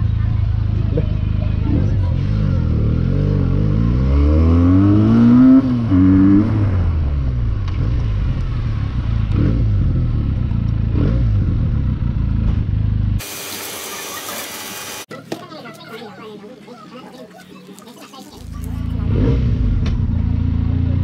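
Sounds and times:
motorcycle engine revving: 0:00.0 - 0:13.5, 0:18.4 - 0:21.0.

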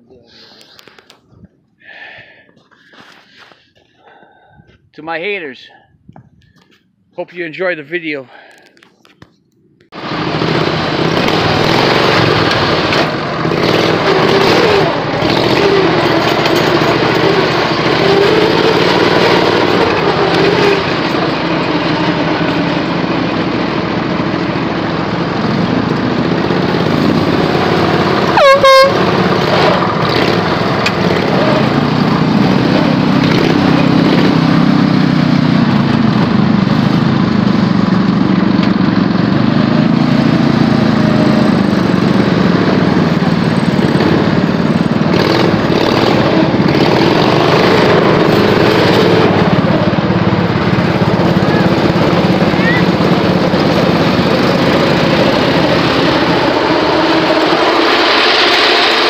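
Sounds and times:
lawn tractor engine: 0:00.0 - 0:05.4, 0:06.4 - 0:59.0
horn toot: 0:28.3 - 0:29.8.

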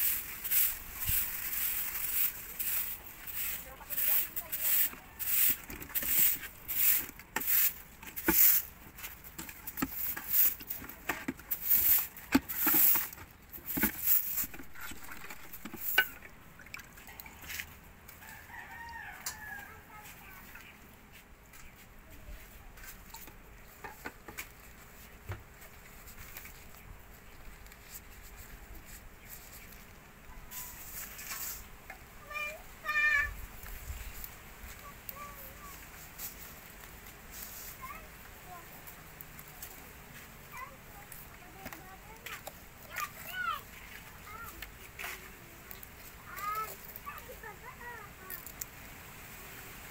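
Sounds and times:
spatula scraping plastic tub: 0:00.0 - 0:16.3.

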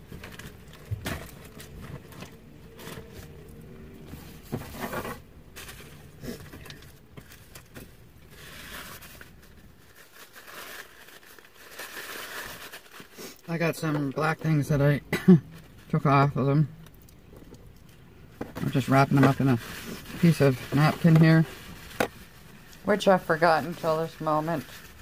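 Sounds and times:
food packaging crinkling: 0:04.8 - 0:14.2, 0:16.8 - 0:25.0.

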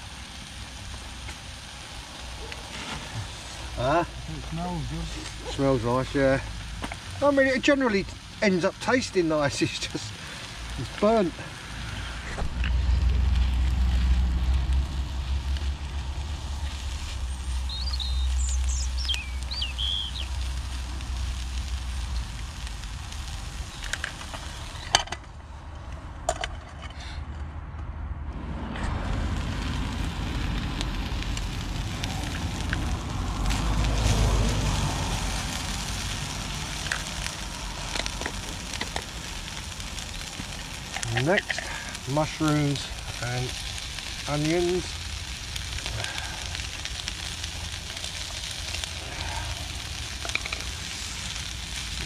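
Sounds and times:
meat sizzling in a pan: 0:00.0 - 0:25.0, 0:29.0 - 0:52.0
low rumble: 0:11.4 - 0:23.7, 0:27.3 - 0:41.0.

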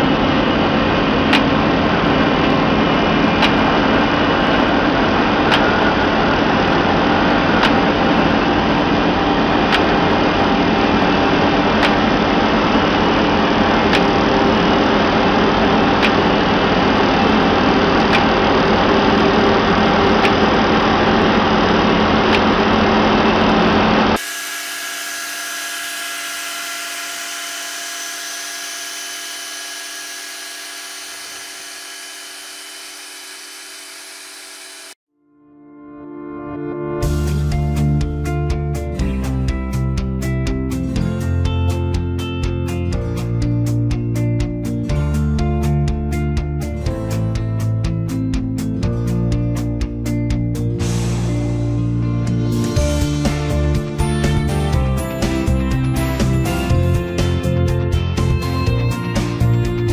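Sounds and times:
rail grinding noise: 0:00.0 - 0:24.2
steady machine sound with held tones: 0:00.0 - 0:35.0.

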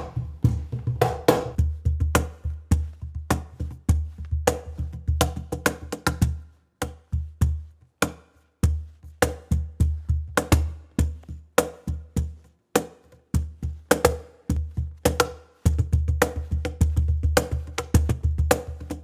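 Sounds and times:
cajon slaps: 0:00.0 - 0:02.4, 0:13.9 - 0:19.0
cajon bass strokes: 0:00.0 - 0:12.5, 0:13.2 - 0:19.0.

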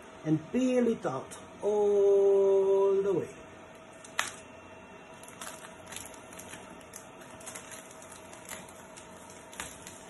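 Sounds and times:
plastic film crackling: 0:04.0 - 0:04.4, 0:05.1 - 0:10.0.

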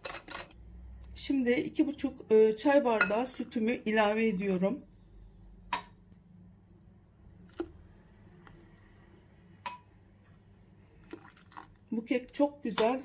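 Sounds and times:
milk pouring into bowl: 0:10.9 - 0:11.9.

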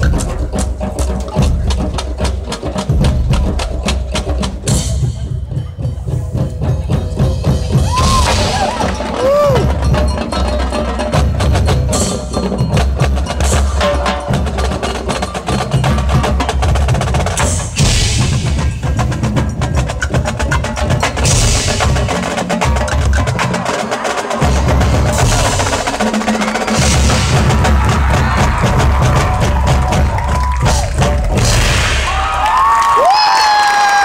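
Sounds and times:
rapid drum strokes: 0:00.0 - 0:32.4
marching band playing: 0:00.0 - 0:33.1
mallet percussion ringing: 0:08.3 - 0:16.8.

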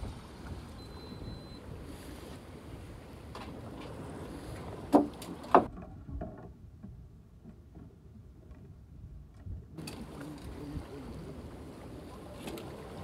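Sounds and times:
wind and sea noise: 0:00.0 - 0:13.0
sharp knocks on boat: 0:04.9 - 0:07.9.

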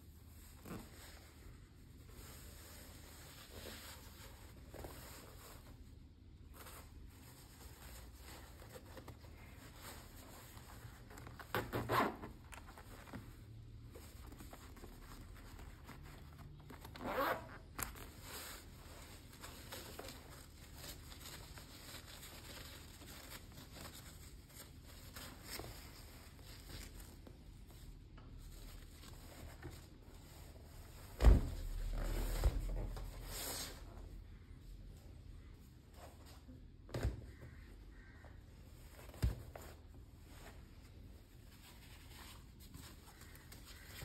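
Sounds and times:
zipper rasping: 0:16.9 - 0:17.6.

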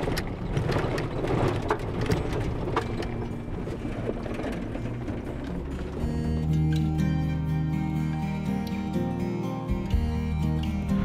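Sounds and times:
vehicle rattles and knocks: 0:00.0 - 0:07.5
engine and tyres rumbling: 0:00.0 - 0:11.0.

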